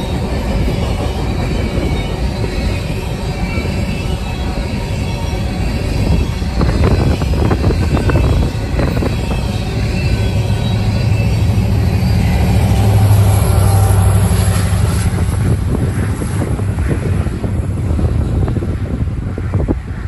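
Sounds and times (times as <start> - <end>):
train engine drone: 0.0 - 20.0
wind on microphone: 4.9 - 11.0, 12.3 - 20.0.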